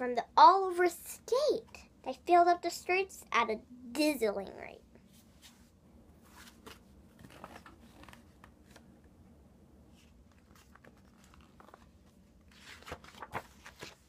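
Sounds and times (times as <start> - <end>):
paper book rustling: 5.1 - 8.9, 9.9 - 14.0.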